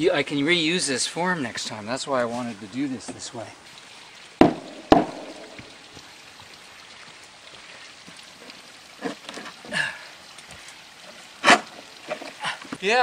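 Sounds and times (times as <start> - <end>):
steady outdoor hiss: 0.0 - 13.0
knocks and rustles on plywood: 4.4 - 5.7.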